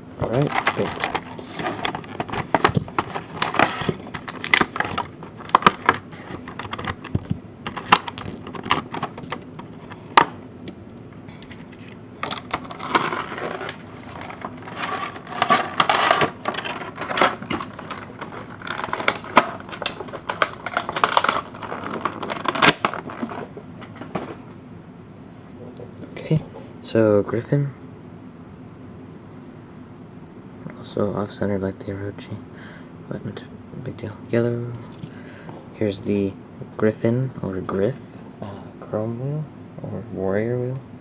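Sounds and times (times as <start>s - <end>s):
plastic packaging crinkling: 0.3s - 7.1s, 11.8s - 23.5s
plastic parts clicking and tapping: 12.2s - 23.4s.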